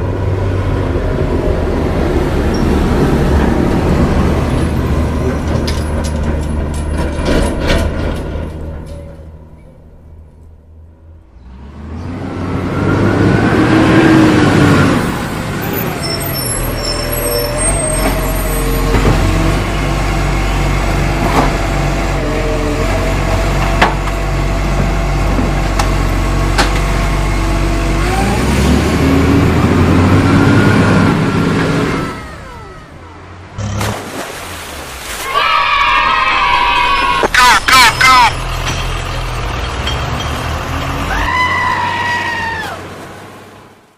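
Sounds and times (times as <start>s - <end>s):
truck engine revving: 11.3s - 34.4s, 35.7s - 42.0s.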